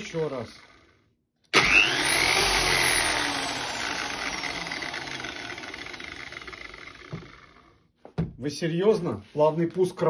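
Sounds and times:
sander motor whining: 0.0s - 7.9s.

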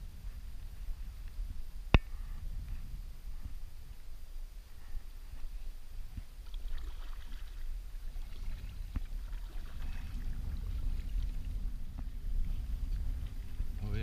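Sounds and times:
wind rumble on microphone: 0.0s - 14.0s
paddle strokes splashing in water: 6.4s - 12.0s.

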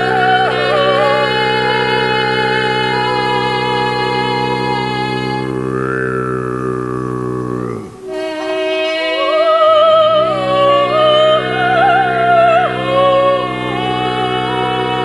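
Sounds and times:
woman singing with vibrato: 0.0s - 6.8s, 7.9s - 15.0s
low drone: 0.0s - 15.0s.

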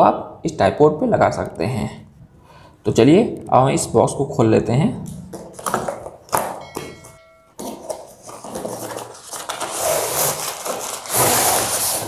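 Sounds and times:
cardboard rustling and scraping: 7.6s - 12.0s.

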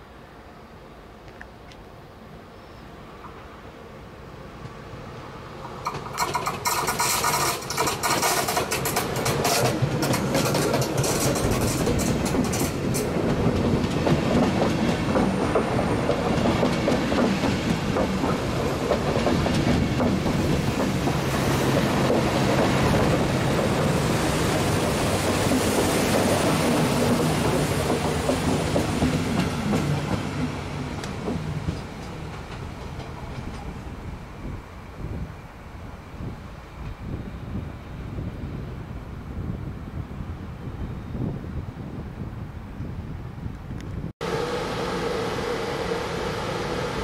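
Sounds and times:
train passing: 0.0s - 41.3s, 44.2s - 47.0s
wheels clacking over rail joints: 5.6s - 34.1s.

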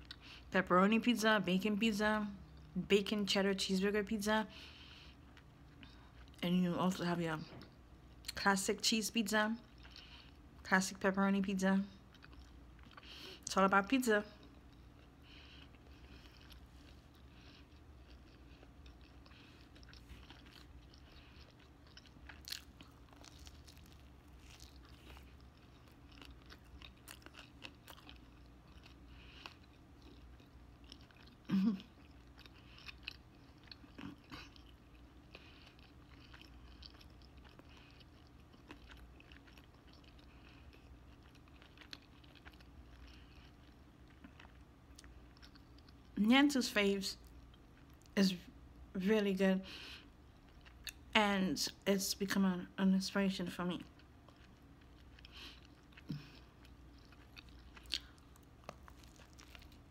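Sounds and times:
person chewing food: 4.6s - 6.4s, 9.6s - 10.6s, 12.0s - 13.5s, 14.3s - 46.2s, 47.2s - 48.2s, 49.8s - 51.1s, 53.9s - 59.9s.

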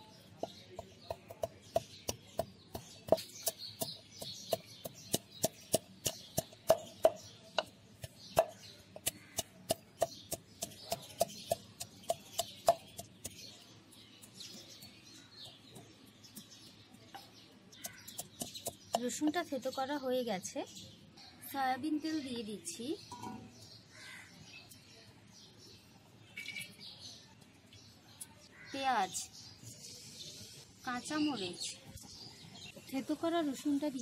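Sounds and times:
pestle pounding in wooden mortar: 0.4s - 13.5s.

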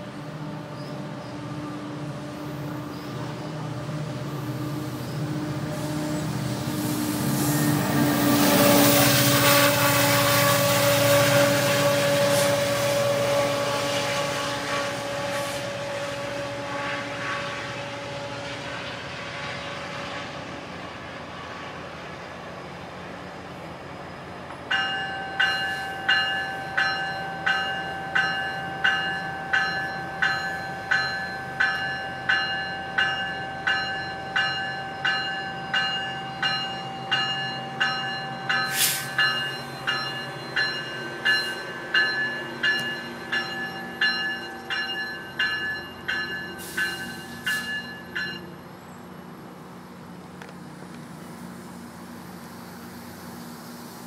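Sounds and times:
diesel train running: 0.0s - 54.0s
locomotive bell ringing: 24.7s - 48.8s.

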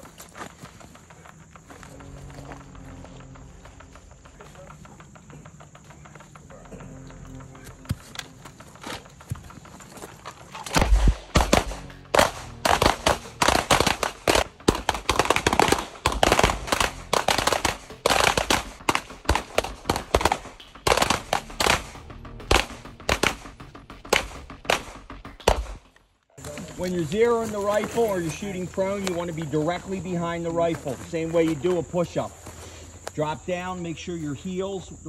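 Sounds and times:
pistol shots: 10.6s - 25.8s.

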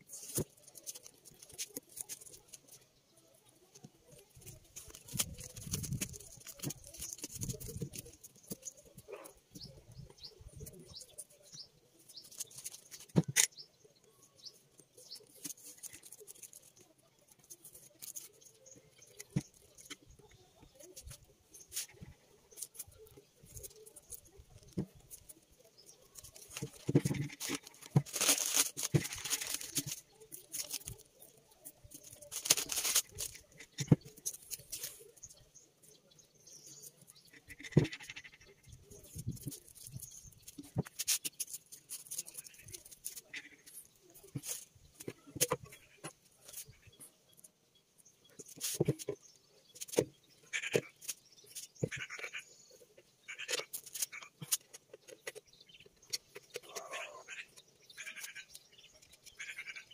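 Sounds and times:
paper crinkling and rustling: 0.0s - 35.9s, 36.7s - 47.5s, 48.3s - 49.2s, 53.4s - 55.4s
tape tearing: 4.4s - 8.7s, 26.2s - 31.1s, 32.0s - 34.9s.

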